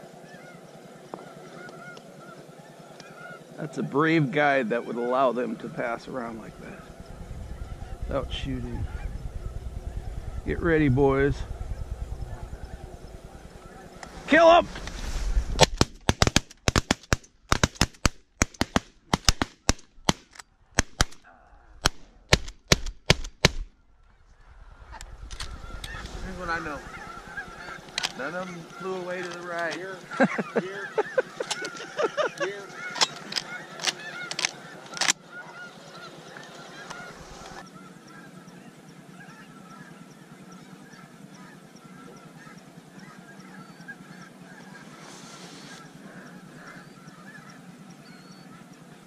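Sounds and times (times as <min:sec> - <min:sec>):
geese honking: 0:00.0 - 0:15.2, 0:24.8 - 0:49.0
sharp bangs: 0:06.2 - 0:21.2, 0:21.8 - 0:23.8
shotgun shots: 0:15.6 - 0:21.2, 0:21.8 - 0:23.7.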